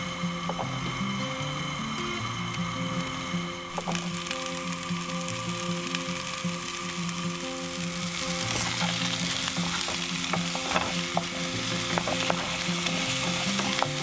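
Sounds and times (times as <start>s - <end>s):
vegetables sizzling in a frying pan: 0.0s - 14.0s
wooden spatula scraping a pan: 8.4s - 14.0s.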